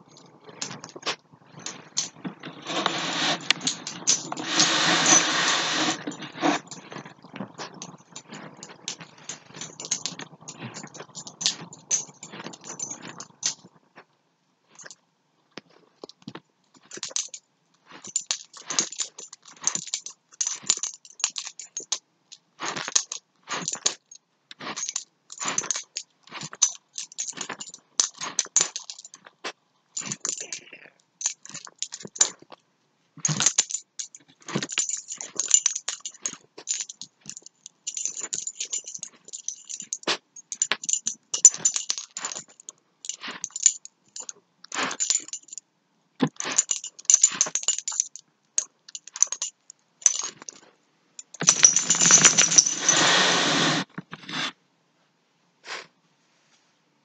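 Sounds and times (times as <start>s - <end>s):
dog collar tags jingling: 0.0s - 13.7s, 16.8s - 29.3s, 30.0s - 30.6s, 31.2s - 32.4s, 33.2s - 45.6s, 46.3s - 50.6s, 51.2s - 53.2s.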